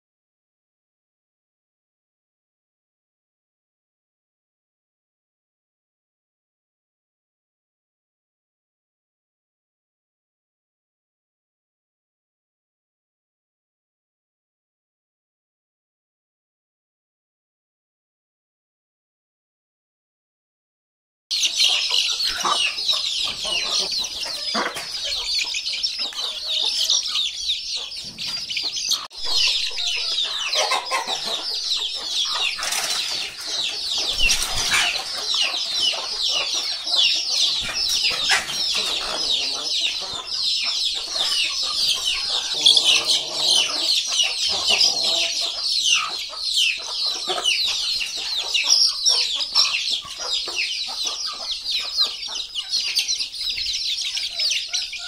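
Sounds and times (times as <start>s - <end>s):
chicks peeping: 21.3s - 55.0s
hen clucking: 21.3s - 55.0s.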